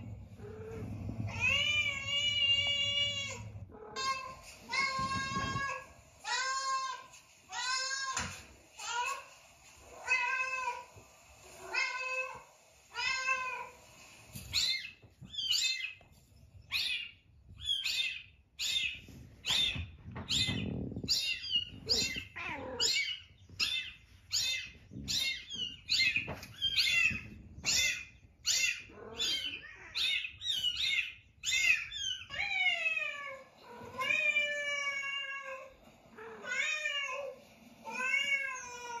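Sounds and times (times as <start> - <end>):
cats meowing: 0.0 - 16.1, 16.7 - 39.0.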